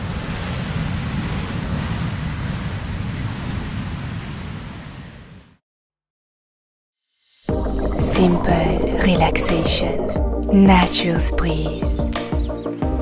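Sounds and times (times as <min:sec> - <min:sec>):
jet airliner taking off: 0:00.0 - 0:05.5.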